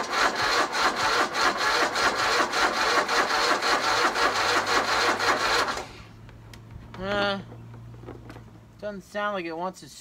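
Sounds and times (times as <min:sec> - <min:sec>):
mower engine cranking: 0:00.0 - 0:06.2.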